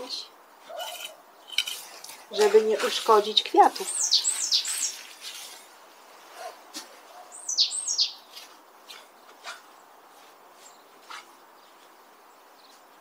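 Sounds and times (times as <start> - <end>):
rake scraping leaf litter: 0.7 - 5.7
bird calling: 3.8 - 5.0, 7.2 - 8.3.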